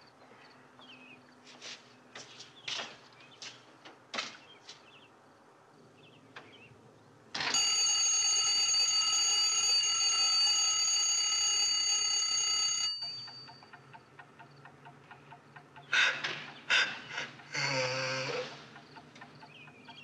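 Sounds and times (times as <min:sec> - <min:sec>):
alarm clock ringing: 0:07.4 - 0:13.8.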